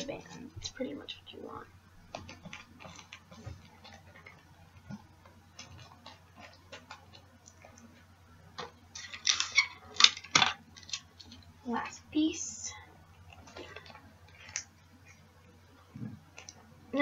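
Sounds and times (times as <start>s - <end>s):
paper and tape rustling: 8.9s - 11.4s.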